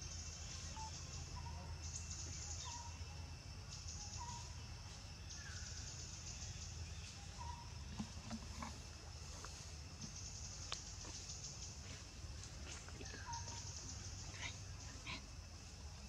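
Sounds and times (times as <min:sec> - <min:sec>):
bird chirps: 0:00.0 - 0:03.0, 0:03.8 - 0:04.6, 0:05.3 - 0:07.7, 0:13.0 - 0:15.2
insects buzzing: 0:00.0 - 0:16.0.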